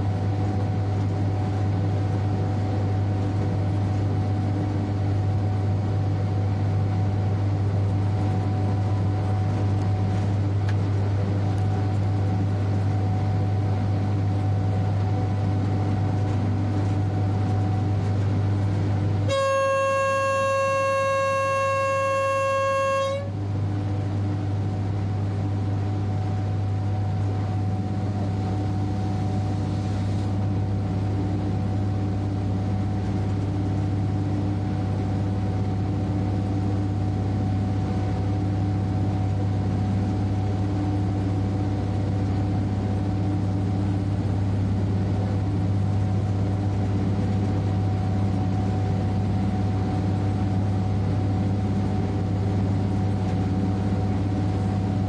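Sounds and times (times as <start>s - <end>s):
train running drone: 0.0s - 55.0s
train horn: 19.2s - 23.5s.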